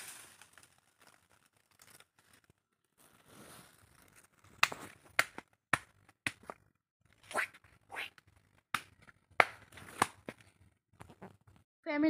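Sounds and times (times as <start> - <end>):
soft rustle: 3.0 - 4.2.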